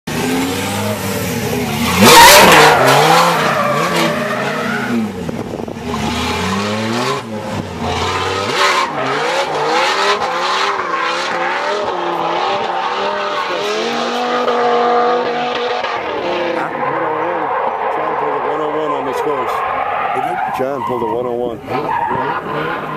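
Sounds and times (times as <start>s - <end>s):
car engine revving: 0.1s - 22.9s
tyre squeal: 1.8s - 5.1s.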